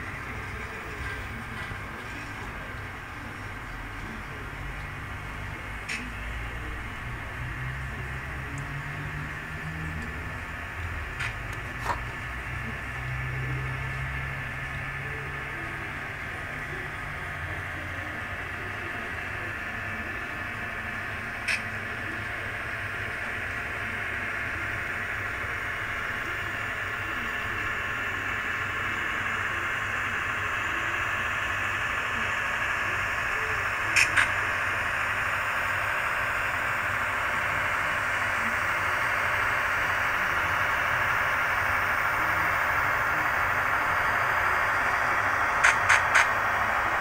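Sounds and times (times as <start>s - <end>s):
model train rolling on track: 0.0s - 47.0s.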